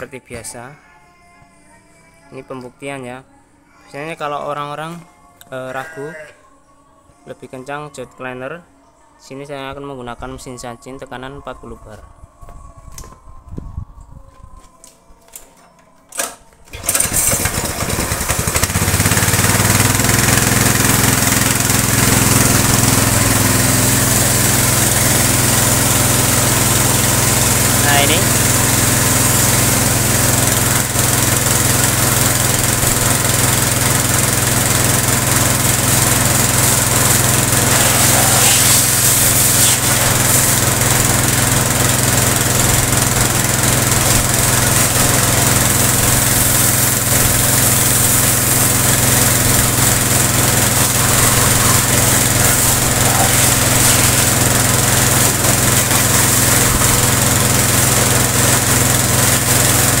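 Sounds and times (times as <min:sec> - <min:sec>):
pressure washer motor drone: 0:16.7 - 1:00.0
water jet hissing: 0:17.5 - 1:00.0.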